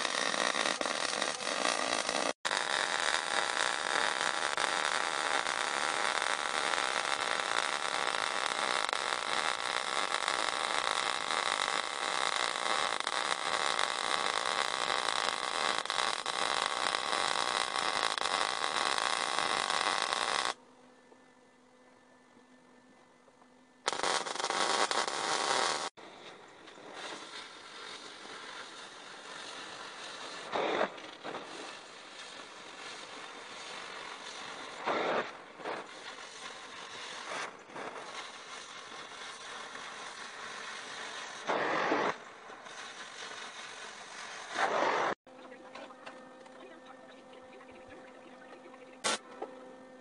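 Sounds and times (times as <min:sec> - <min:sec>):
cutting torch hissing: 0:00.0 - 0:20.6, 0:26.8 - 0:45.2
welder crackling: 0:00.0 - 0:20.6, 0:23.8 - 0:45.2, 0:46.0 - 0:49.6.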